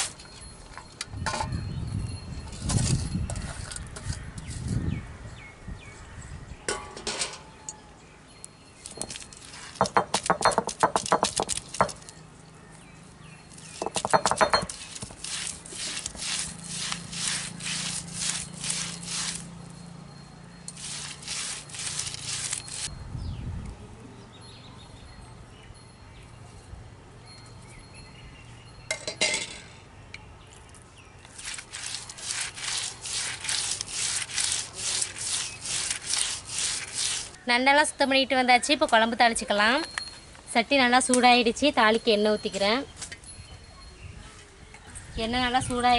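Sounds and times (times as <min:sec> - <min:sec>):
stone roller grinding on slab: 0:13.5 - 0:19.6, 0:20.7 - 0:22.9, 0:31.3 - 0:37.4.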